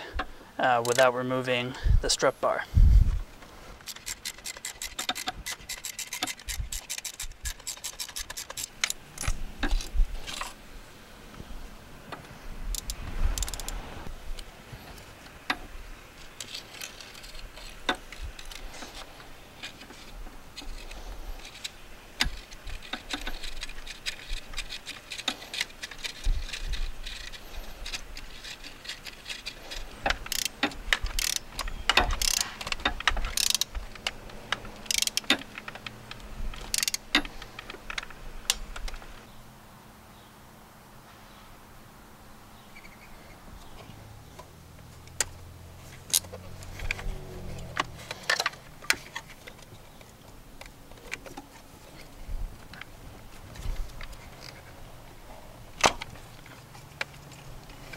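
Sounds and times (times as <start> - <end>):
ratchet wrench clicking: 3.8 - 9.8, 12.7 - 13.8, 20.6 - 37.6.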